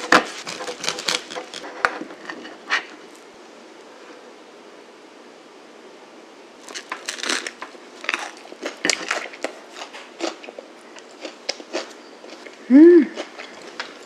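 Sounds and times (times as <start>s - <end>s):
crunching and chewing bread: 0.0s - 2.9s, 6.6s - 14.0s
person humming: 12.6s - 13.2s.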